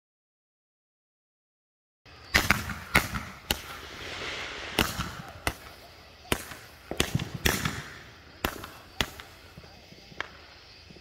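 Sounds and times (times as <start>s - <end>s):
fireworks hiss: 2.2s - 11.0s
fireworks bangs: 2.4s - 10.3s.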